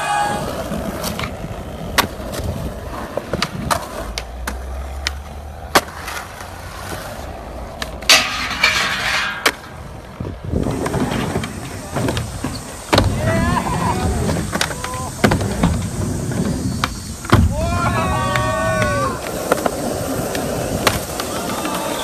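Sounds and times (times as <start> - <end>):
skateboard wheels rolling on concrete: 0.0 - 22.0
skateboard clacking: 0.1 - 22.0.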